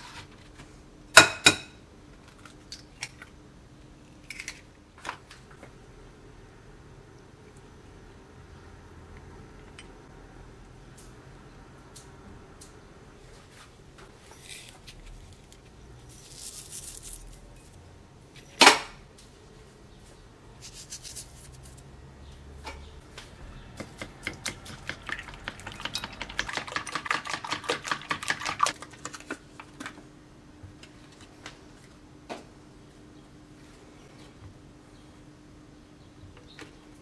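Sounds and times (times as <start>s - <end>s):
fork beating eggs in bowl: 23.8s - 29.9s.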